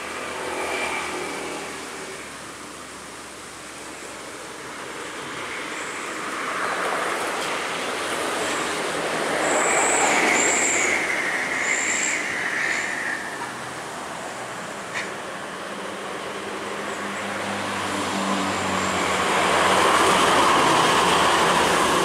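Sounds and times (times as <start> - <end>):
high brake squeal: 9.3 - 13.5
vehicle passing by: 15.8 - 22.0.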